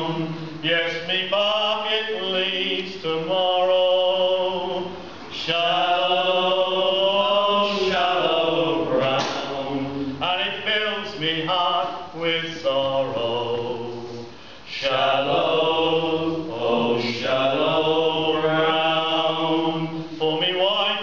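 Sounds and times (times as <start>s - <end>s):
men singing in harmony: 0.0s - 21.0s.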